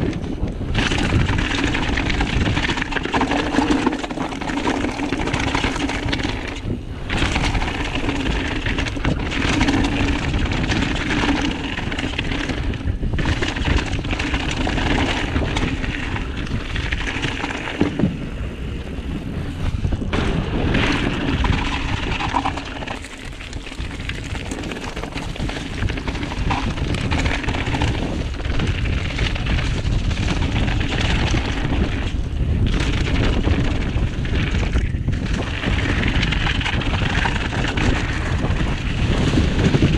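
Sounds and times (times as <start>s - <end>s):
bike clattering: 0.0s - 19.0s, 19.8s - 39.9s
tyres on wooden plank bridge: 0.0s - 39.9s
wind buffeting microphone: 0.0s - 39.9s
tyres crunching over gravel: 20.1s - 32.1s.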